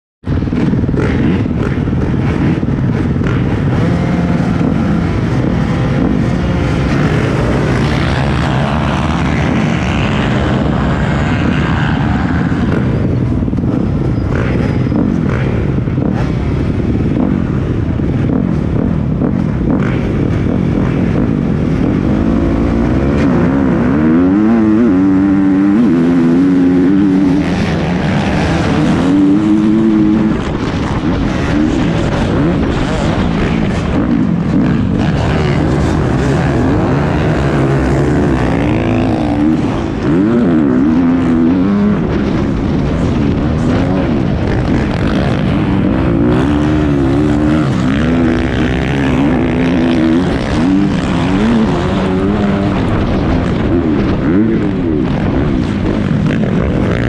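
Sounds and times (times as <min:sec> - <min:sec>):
motocross bike engines: 0:00.2 - 0:57.0
motorbike accelerating through gears: 0:00.2 - 0:57.0.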